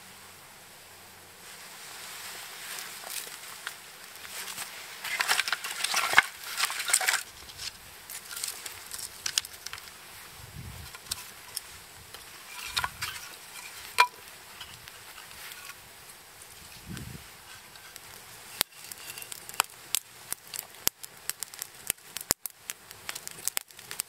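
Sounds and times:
wood fire crackling: 1.1s - 24.0s
kindling sticks clattering: 2.8s - 10.0s, 10.8s - 15.8s, 17.4s - 19.8s.

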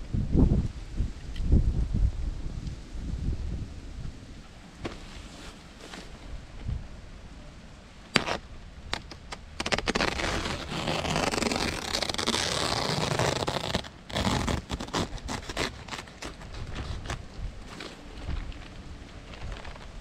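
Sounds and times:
plastic tarp crinkling: 9.6s - 20.0s.

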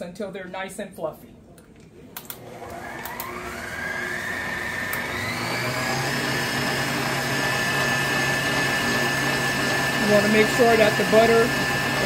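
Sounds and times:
mixer switch clicks: 2.2s - 3.4s, 4.9s - 5.1s
stand mixer motor whine: 2.4s - 12.0s.

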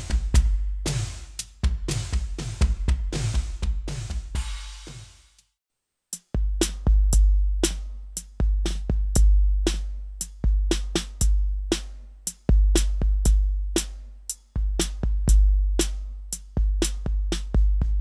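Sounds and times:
snare and hi-hat hits: 0.0s - 18.0s.

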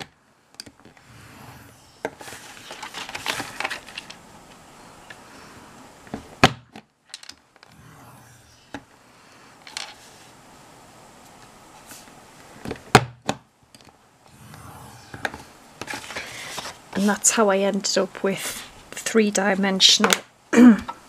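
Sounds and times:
card and tools handling: 2.2s - 4.2s.

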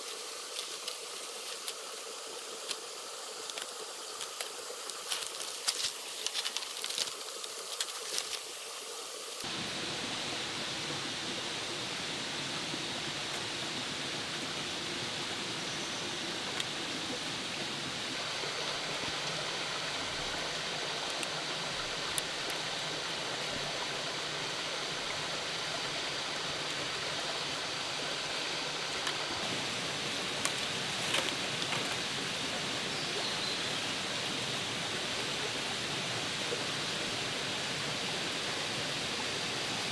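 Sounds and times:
running water rushing: 0.0s - 39.9s
sharp clicks and crackles: 3.4s - 8.5s.

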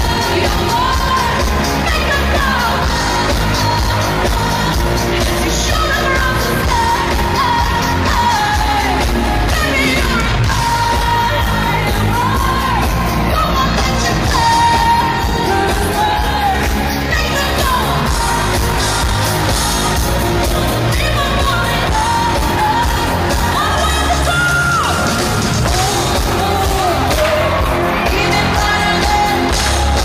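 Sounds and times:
band with heavy beat: 0.0s - 30.0s.

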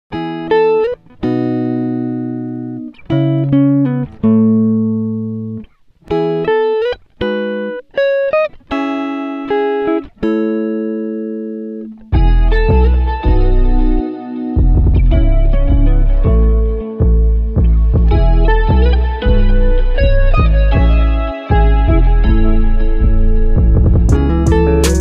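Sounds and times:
slow plucked notes and chords: 8.8s - 25.0s.

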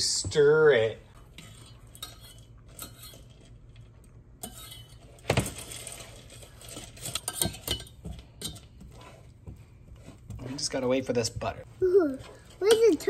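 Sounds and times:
metal whisk scraping a saucepan: 1.1s - 11.2s, 12.2s - 13.0s.

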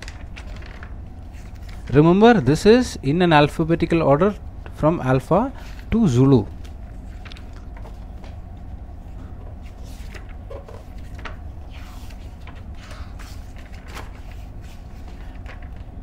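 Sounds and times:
book pages turning: 0.0s - 2.0s, 5.6s - 16.0s
steady low hum: 0.0s - 16.0s.

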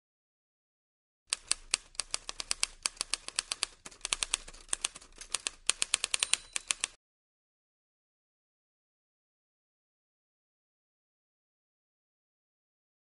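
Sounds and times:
typewriter keystroke clacks: 1.3s - 7.0s.

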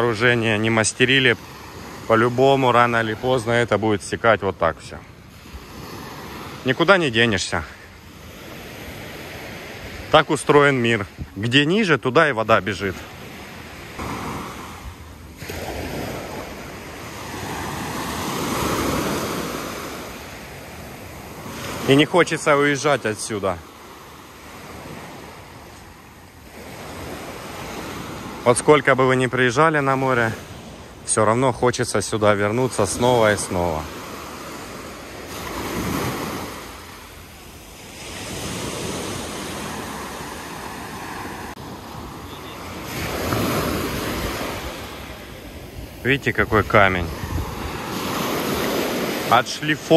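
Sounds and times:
sea waves washing up a beach: 0.0s - 49.9s
wind rumbling on microphone: 42.8s - 49.1s.

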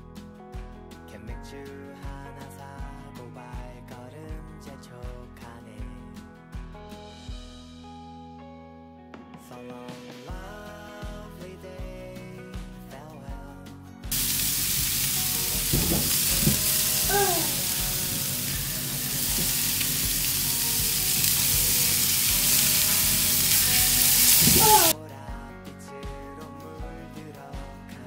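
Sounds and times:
meat sizzling on a grill: 14.1s - 25.0s.

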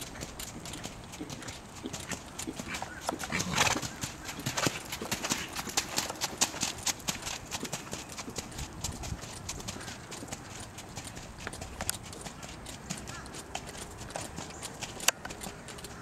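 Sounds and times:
horse trotting on sand: 0.0s - 16.0s.

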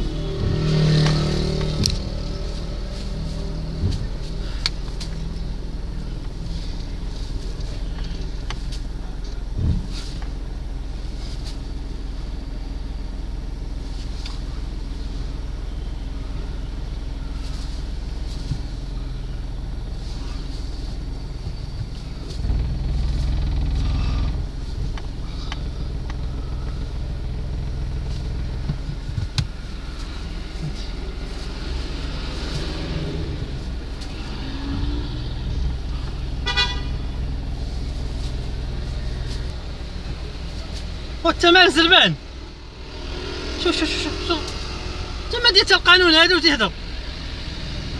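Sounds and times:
car engine humming: 0.0s - 47.9s
street traffic: 0.0s - 47.9s
car horn toot: 36.3s - 37.3s.

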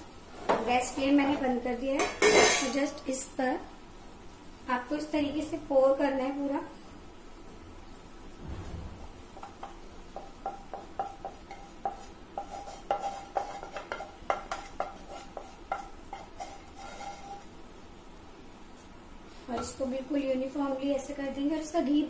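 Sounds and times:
spatula knocking and scraping: 9.2s - 17.5s.

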